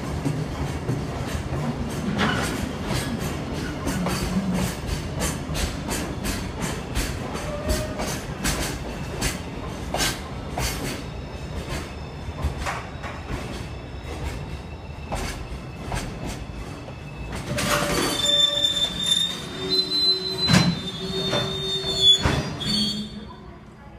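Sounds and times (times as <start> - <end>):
train wheels knocking on rail joints: 0.0 - 11.0
lower wheel squeal: 13.7 - 23.3
high wheel squeal: 17.0 - 23.3.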